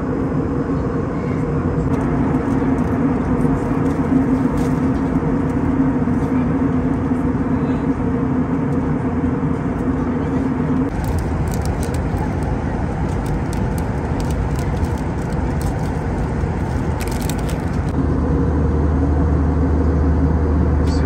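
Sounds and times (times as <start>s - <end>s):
airliner cabin noise: 0.0s - 21.0s
plastic snack packet crinkling: 10.9s - 17.9s.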